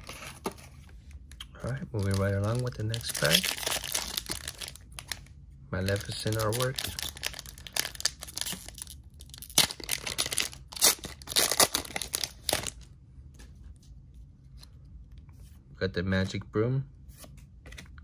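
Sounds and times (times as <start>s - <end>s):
foil wrapper torn open crinkling: 1.9s - 5.3s, 5.9s - 12.8s.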